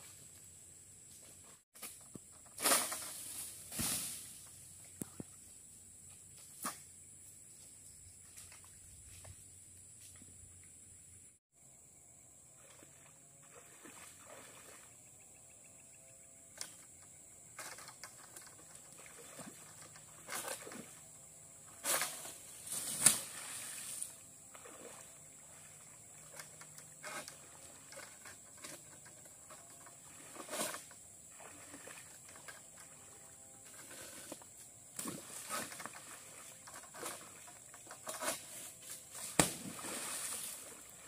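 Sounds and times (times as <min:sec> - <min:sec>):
water sloshing and splashing: 0:12.8 - 0:15.0, 0:18.1 - 0:21.2, 0:23.2 - 0:28.6, 0:29.2 - 0:33.2, 0:35.0 - 0:38.2, 0:39.5 - 0:41.0.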